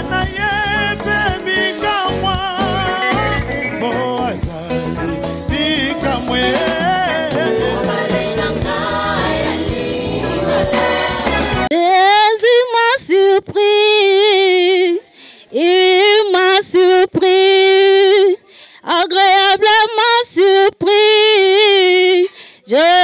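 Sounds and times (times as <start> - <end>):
band music with singing: 0.0 - 11.7
woman singing unaccompanied: 5.7 - 23.0.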